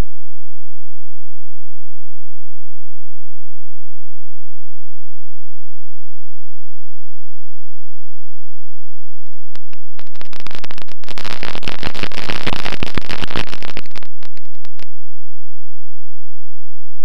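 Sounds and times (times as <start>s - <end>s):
crackling wind on microphone: 9.2s - 15.1s.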